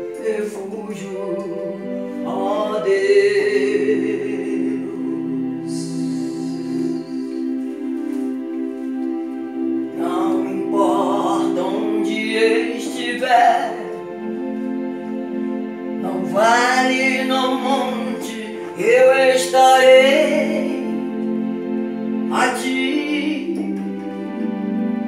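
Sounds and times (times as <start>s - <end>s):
woman singing with vibrato: 0.0s - 7.6s, 10.0s - 14.0s, 16.0s - 21.2s, 22.3s - 24.1s
electronic keyboard chords: 0.0s - 25.0s.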